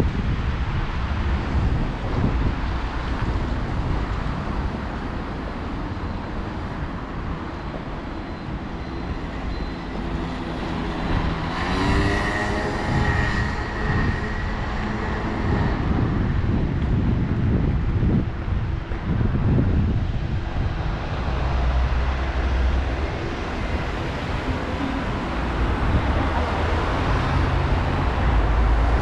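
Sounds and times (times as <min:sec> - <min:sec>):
city street traffic rumble: 0:00.0 - 0:29.0
wind on microphone: 0:00.0 - 0:29.0
vehicle whine rising in pitch: 0:08.2 - 0:18.2.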